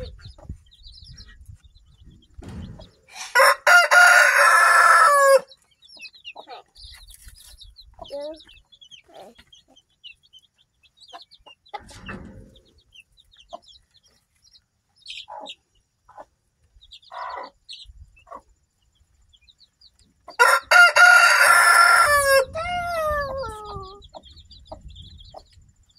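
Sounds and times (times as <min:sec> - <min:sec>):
hen clucking: 0:00.0 - 0:14.3, 0:15.0 - 0:18.6, 0:20.0 - 0:25.6
chicks peeping: 0:00.0 - 0:25.9
rooster crowing: 0:03.2 - 0:05.5, 0:20.4 - 0:23.6.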